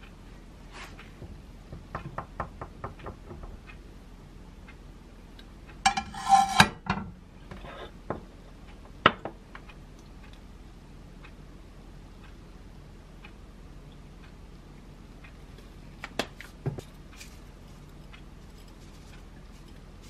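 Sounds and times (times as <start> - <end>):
dishes clattering on countertop: 5.9 - 8.2.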